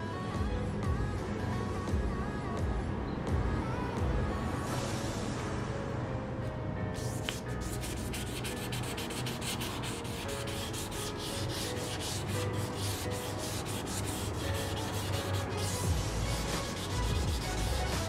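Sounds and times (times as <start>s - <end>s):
sandpaper scratching on metal: 7.0s - 18.0s.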